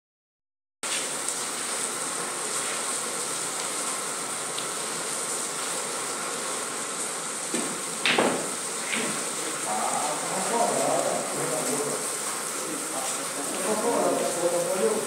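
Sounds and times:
steady hissing noise: 0.9 - 15.0
cue tip striking cue ball: 7.5 - 9.3.

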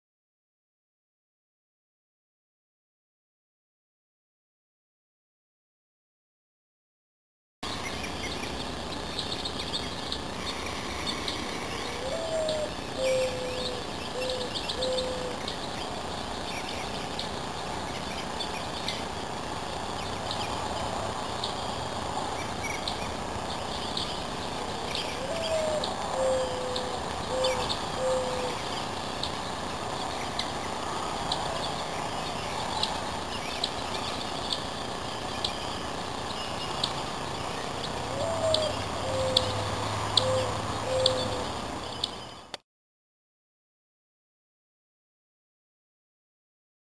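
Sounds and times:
small birds chirping: 7.6 - 42.6
steady outdoor hiss: 7.6 - 42.6
dove cooing: 10.5 - 15.6, 25.0 - 28.8, 37.9 - 41.7.

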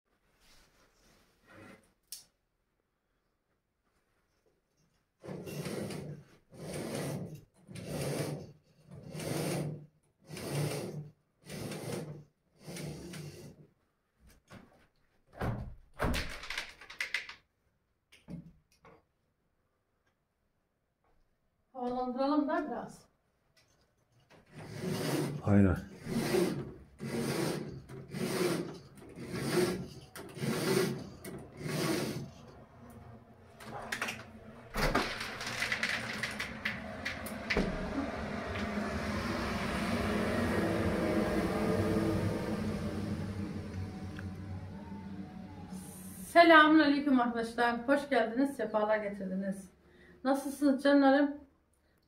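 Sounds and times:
roller blind chain rasping: 5.3 - 13.5, 24.5 - 46.1.

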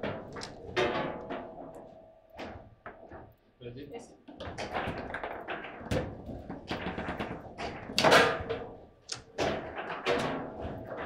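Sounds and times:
table football knocks and clacks: 4.3 - 11.0.

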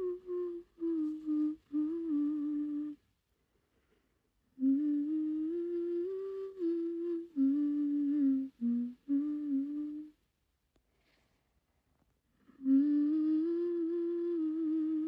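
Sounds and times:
woman humming a slow melody: 0.0 - 3.0, 4.6 - 10.2, 12.5 - 15.0.

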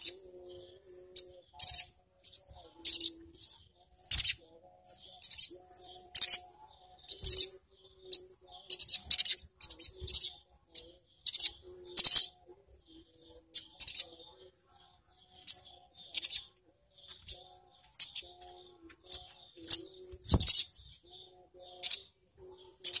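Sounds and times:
bird high sharp chirps: 1.1 - 4.4, 5.0 - 12.4, 13.4 - 14.2, 15.3 - 22.1.

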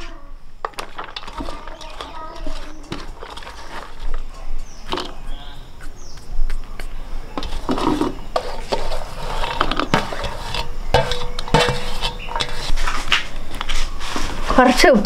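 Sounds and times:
food pieces clattering into plastic bowl: 0.6 - 5.2.

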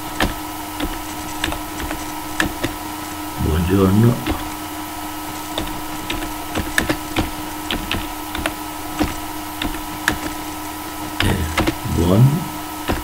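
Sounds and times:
steady hum: 0.0 - 13.0
keyboard keystroke clicks: 5.5 - 10.4.

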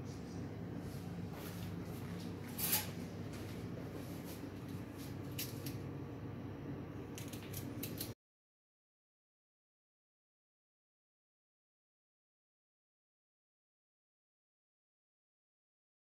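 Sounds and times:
steady low hum: 0.0 - 8.2.

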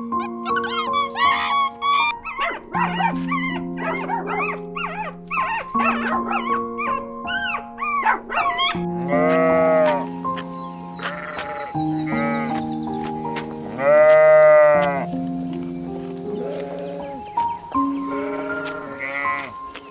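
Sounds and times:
background music with held notes: 0.0 - 19.9
small dog whimpering and yipping: 0.2 - 8.9
sheep bleating: 9.0 - 10.1, 11.0 - 12.6, 13.6 - 15.1, 16.3 - 17.2, 17.9 - 19.6.

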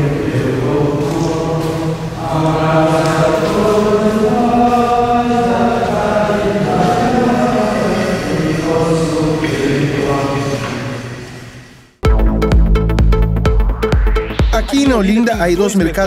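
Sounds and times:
men chanting together: 0.0 - 10.9.

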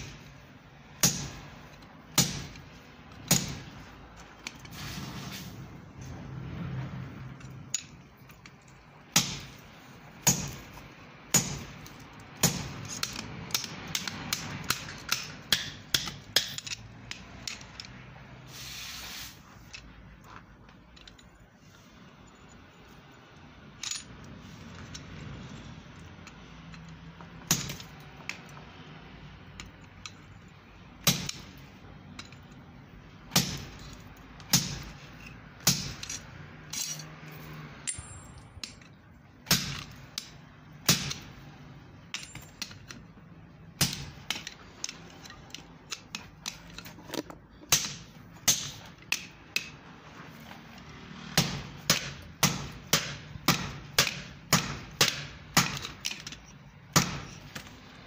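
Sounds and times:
hammer striking steel on anvil: 1.0 - 1.5, 2.1 - 2.6, 10.2 - 10.7, 11.3 - 11.8, 12.4 - 16.8, 37.8 - 38.8, 51.4 - 56.0.

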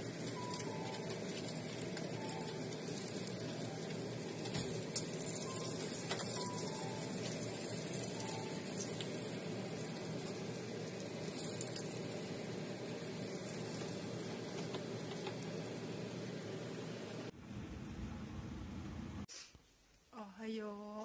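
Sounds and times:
fish sizzling in hot oil: 0.0 - 16.4.

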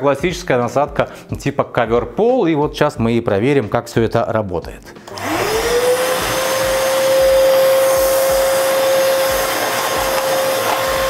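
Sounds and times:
vacuum cleaner motor whine: 5.1 - 11.0.

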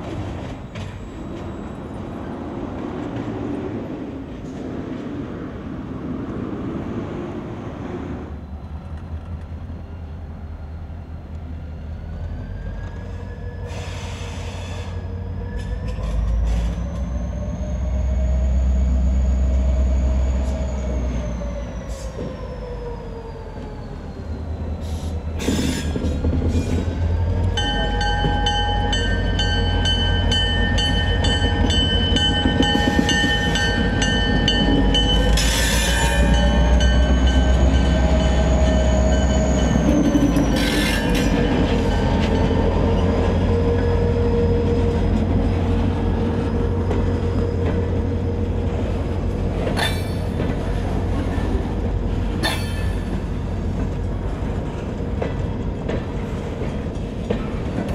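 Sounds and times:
diesel locomotive engine drone: 0.0 - 57.9
locomotive bell ringing: 27.5 - 47.5.

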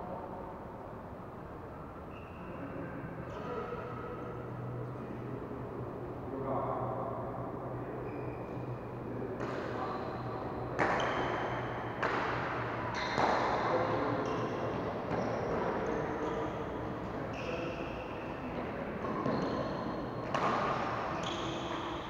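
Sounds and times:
shoes squeaking on court floor: 9.4 - 18.4, 19.0 - 22.0.

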